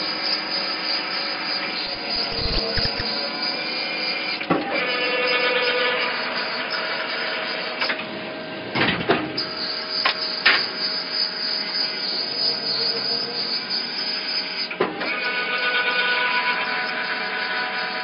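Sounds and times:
tapping machine hum and whine: 0:01.9 - 0:03.2.

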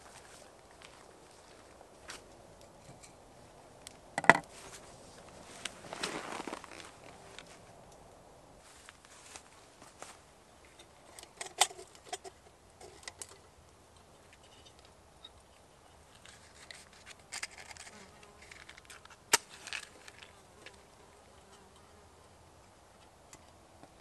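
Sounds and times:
metal lantern clicks and rattles: 0:10.7 - 0:13.5, 0:16.2 - 0:20.3.

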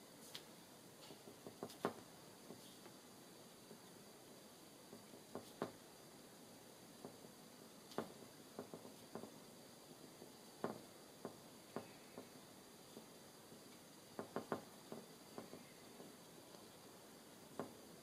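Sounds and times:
low steady hiss: 0:00.0 - 0:18.0
paintbrush tapping on paper: 0:01.1 - 0:03.0, 0:04.9 - 0:05.8, 0:07.9 - 0:09.4, 0:10.6 - 0:12.3, 0:14.2 - 0:16.7, 0:17.5 - 0:17.8.

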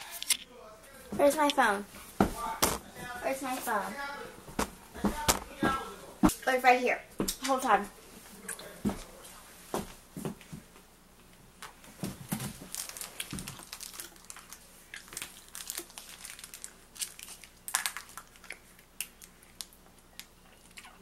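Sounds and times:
objects crinkling and clicking: 0:11.6 - 0:21.0.

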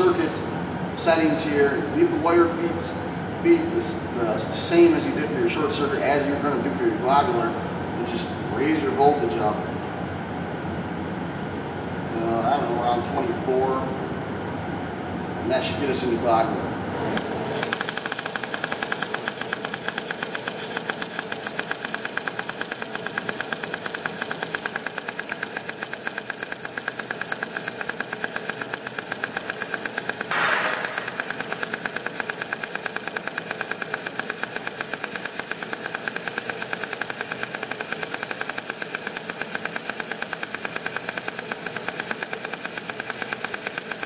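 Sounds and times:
welding arc crackle and buzz: 0:17.2 - 0:44.0.

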